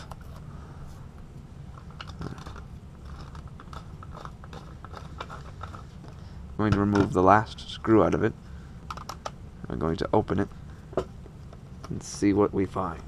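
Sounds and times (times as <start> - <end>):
low steady hum: 0.0 - 13.0
fingers peeling plastic: 1.8 - 5.9.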